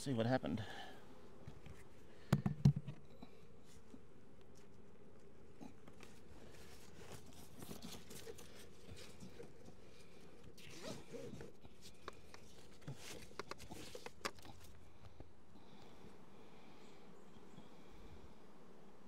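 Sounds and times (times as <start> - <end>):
nylon strap rasping: 10.5 - 14.8.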